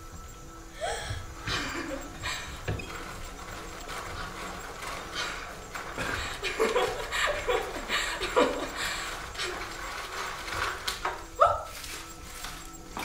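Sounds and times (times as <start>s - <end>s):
paper rustling: 3.6s - 13.0s.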